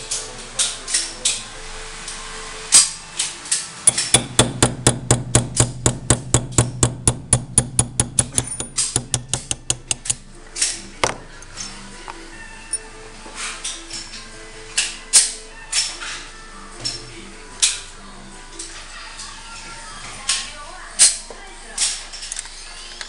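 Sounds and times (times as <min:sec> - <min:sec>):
hammer tapping metal punch: 0:03.9 - 0:10.3, 0:11.0 - 0:12.8.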